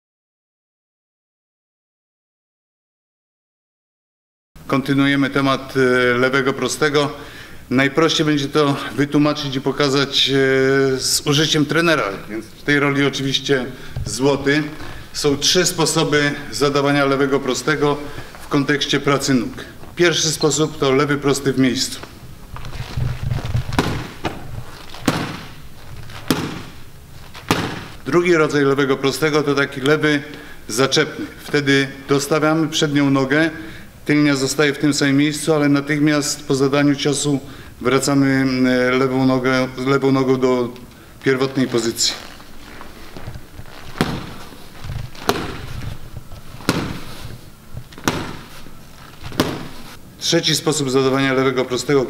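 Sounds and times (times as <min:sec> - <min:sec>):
light shuffling footsteps: 0:21.6 - 0:28.1, 0:41.2 - 0:50.0
punches smacking into pads: 0:23.7 - 0:28.0, 0:43.8 - 0:45.9, 0:46.6 - 0:47.3, 0:47.9 - 0:48.6, 0:49.2 - 0:49.9.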